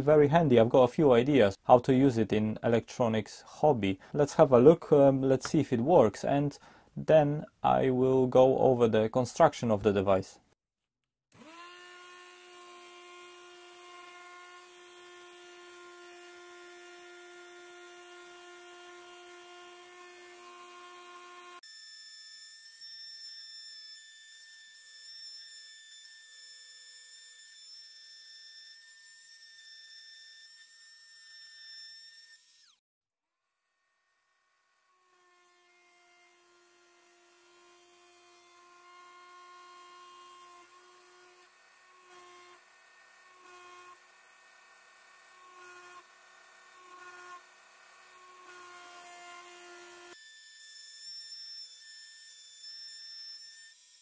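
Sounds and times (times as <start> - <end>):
rotary tool whining: 38.6 - 54.0.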